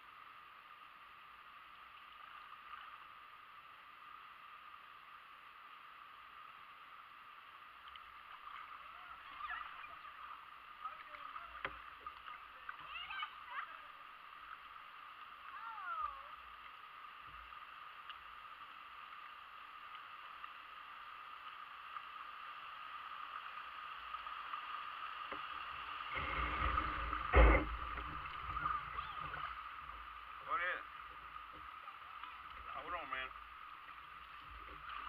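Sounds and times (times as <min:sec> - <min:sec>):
creek water rushing and gurgling: 0:00.0 - 0:35.0
knock against kayak: 0:26.2 - 0:28.2.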